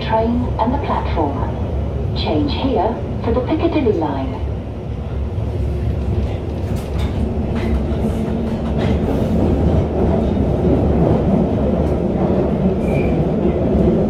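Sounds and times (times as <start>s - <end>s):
train wheels rumbling: 5.0s - 14.0s.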